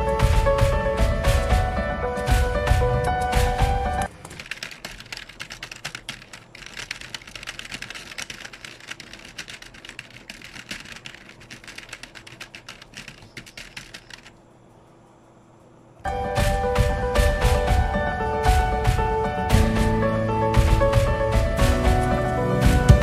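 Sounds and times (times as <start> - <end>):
background music: 0.0 - 4.1, 16.0 - 23.0
rapid keyboard typing clicks: 0.2 - 14.5, 16.4 - 23.0.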